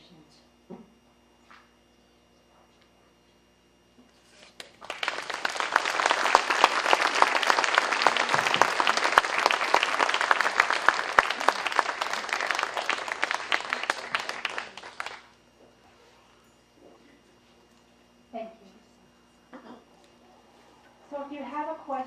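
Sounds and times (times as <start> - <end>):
audience applauding: 4.6 - 15.4.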